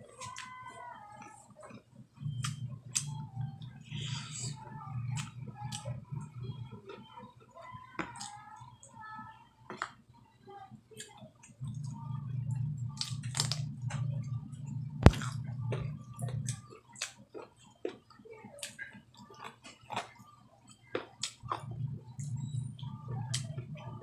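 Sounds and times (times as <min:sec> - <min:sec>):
person chewing: 0:01.2 - 0:03.2, 0:13.0 - 0:14.0, 0:15.0 - 0:18.0, 0:18.6 - 0:20.2
low hum: 0:02.1 - 0:07.6, 0:11.5 - 0:16.7, 0:21.4 - 0:24.0.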